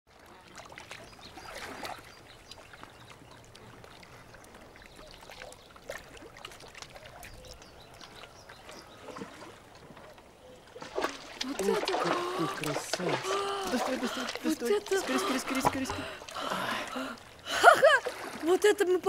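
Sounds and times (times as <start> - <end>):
water lapping around boat: 0.1 - 19.0.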